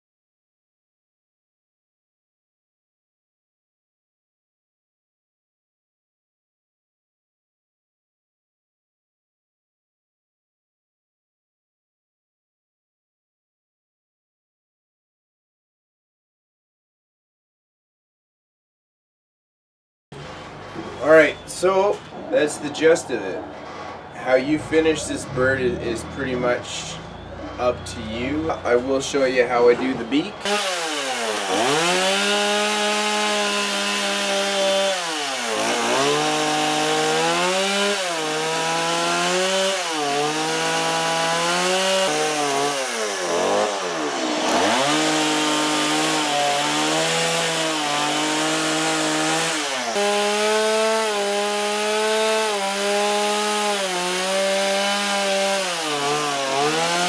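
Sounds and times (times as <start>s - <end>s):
chainsaw cutting wood: 28.2s - 57.0s.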